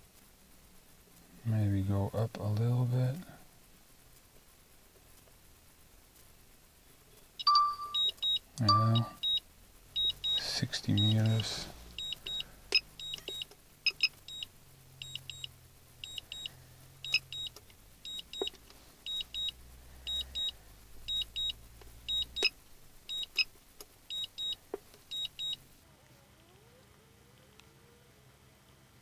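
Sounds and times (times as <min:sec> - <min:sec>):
faint low hum: 0:00.0 - 0:29.0
short high double beeps: 0:07.4 - 0:09.4, 0:10.0 - 0:11.4.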